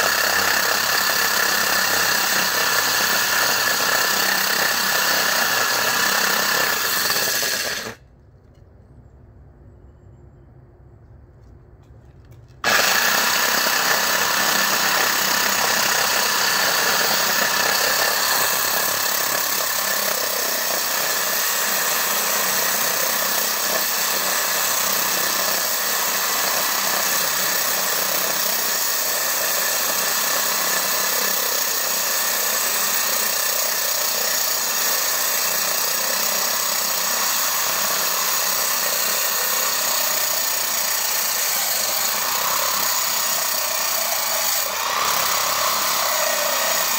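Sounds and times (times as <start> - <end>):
core drill cutting concrete: 0.0 - 8.0, 12.6 - 46.9.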